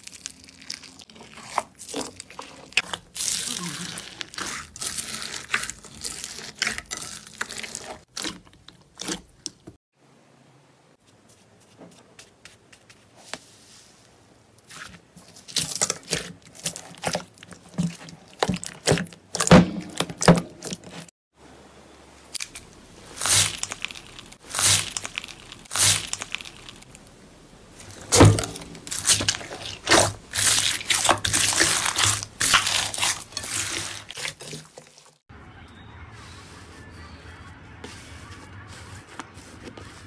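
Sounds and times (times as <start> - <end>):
beaded slime crunching: 0.0 - 9.5, 22.3 - 27.0, 27.9 - 35.1.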